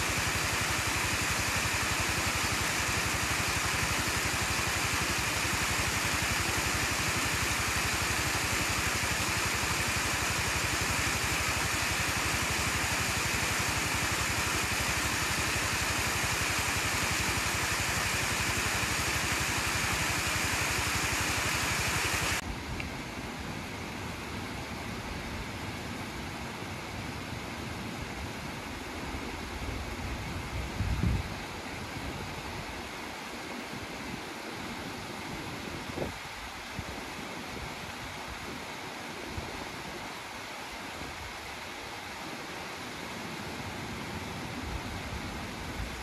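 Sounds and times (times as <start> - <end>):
distant rush of water: 0.0 - 46.0
water rushing over small dam: 0.0 - 46.0.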